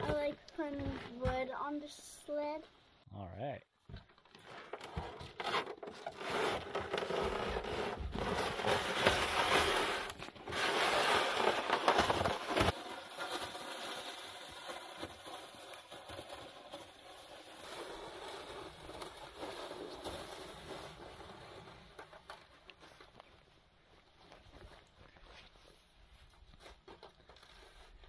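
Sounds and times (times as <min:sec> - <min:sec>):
sled scraping over snow: 0:04.8 - 0:23.1.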